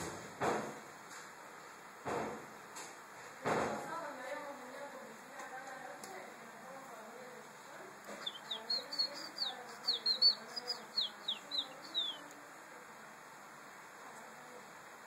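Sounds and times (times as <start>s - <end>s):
bird chirping and whistling: 8.2s - 12.2s.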